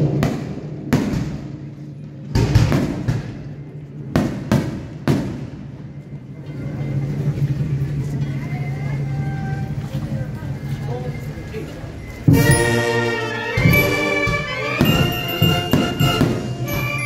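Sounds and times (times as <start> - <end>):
firecrackers banging: 0.0 - 6.1, 12.3 - 17.0
low steady drone: 5.4 - 17.0.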